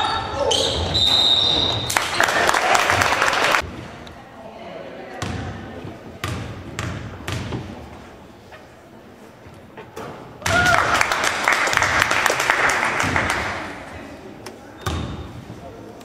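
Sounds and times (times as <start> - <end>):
crowd applauding and cheering: 1.9 - 3.6, 10.5 - 13.4.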